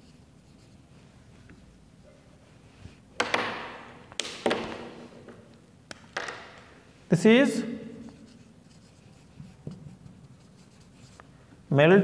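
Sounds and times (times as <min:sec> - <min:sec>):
marker scraping: 0:00.0 - 0:01.7, 0:07.9 - 0:11.3
marker knocking: 0:03.2 - 0:06.8, 0:09.1 - 0:10.1.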